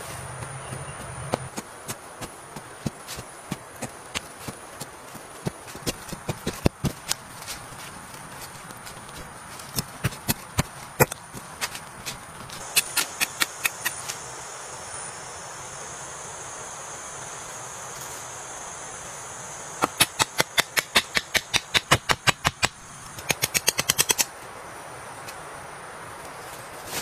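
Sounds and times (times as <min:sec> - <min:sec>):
high insect drone: 0:00.0 - 0:27.0
hand tool hacking at ground: 0:09.6 - 0:14.0, 0:19.8 - 0:24.3.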